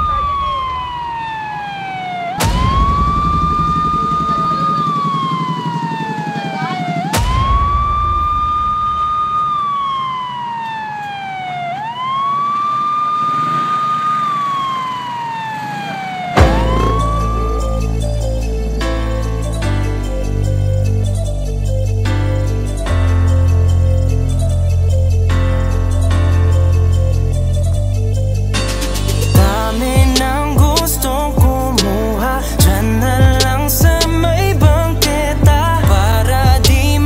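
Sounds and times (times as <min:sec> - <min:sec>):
police siren wailing: 0:00.0 - 0:37.0
low rumble: 0:16.4 - 0:22.0.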